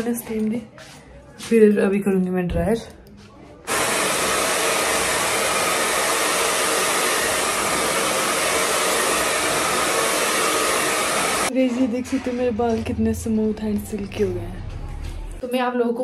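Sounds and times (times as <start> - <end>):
hair dryer blowing: 3.7 - 11.5.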